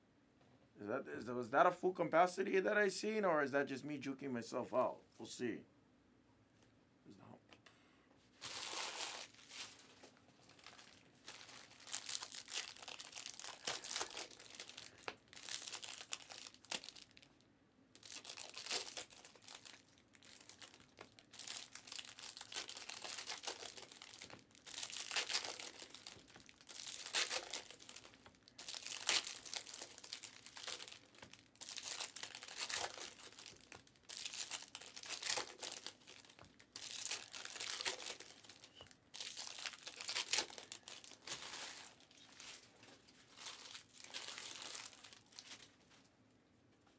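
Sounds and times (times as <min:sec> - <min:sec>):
foil wrappers crinkling and tearing: 0:08.4 - 0:17.4, 0:18.0 - 0:45.7.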